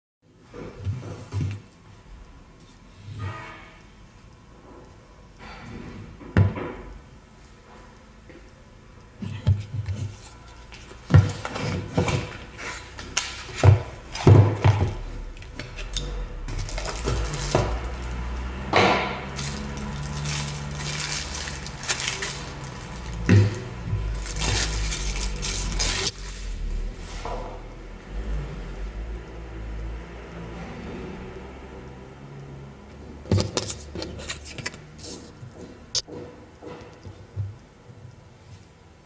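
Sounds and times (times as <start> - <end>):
plastic wrapping crinkling: 16.5 - 18.4, 19.3 - 26.5.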